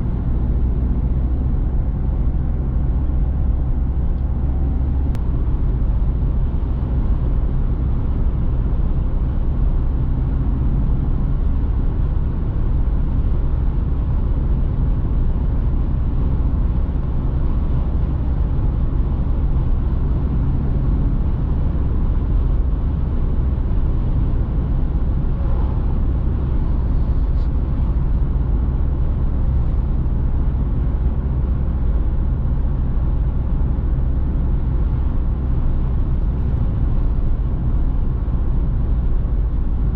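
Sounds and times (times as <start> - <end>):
diesel engine droning: 0.0 - 39.9.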